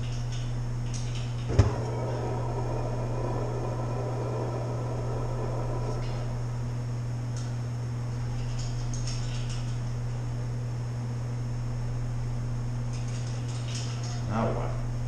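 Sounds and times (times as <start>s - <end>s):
steady low hum: 0.0s - 15.0s
gas hissing: 1.5s - 7.1s.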